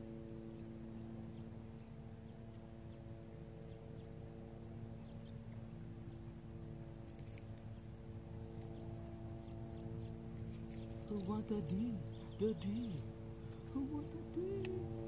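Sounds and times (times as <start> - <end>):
low hum of several pitches: 0.0 - 15.0
thin high steady tone: 7.7 - 15.0.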